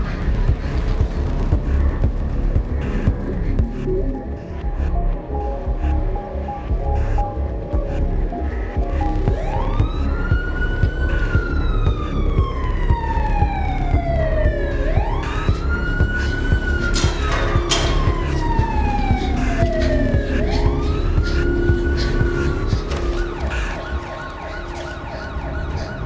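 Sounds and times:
dense low rumble: 0:00.0 - 0:24.7
police siren wailing: 0:08.8 - 0:26.0.

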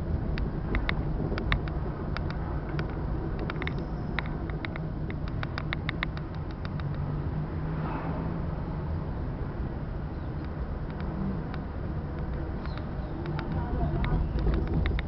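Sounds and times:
car engine and tyres rumbling: 0:00.0 - 0:15.0
light clicking rattles: 0:00.3 - 0:07.1, 0:10.4 - 0:15.0.

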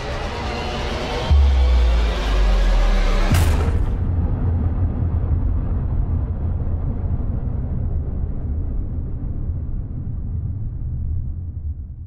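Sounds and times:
deep cinematic rumble: 0:00.0 - 0:12.0.

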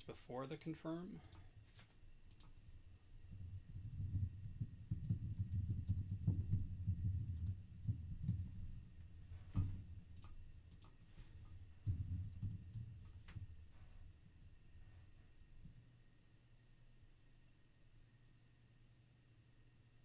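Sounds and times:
keyboard typing: 0:02.3 - 0:02.6, 0:03.2 - 0:11.0, 0:11.8 - 0:13.5.

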